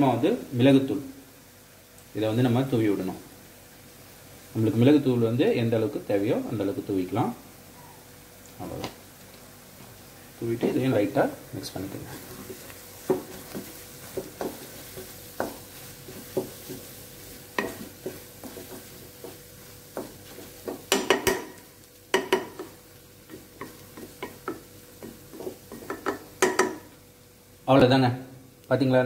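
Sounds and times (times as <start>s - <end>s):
spatula scraping a pan: 12.0s - 21.4s, 22.2s - 26.8s
spatula tapping a pan: 12.5s - 27.0s.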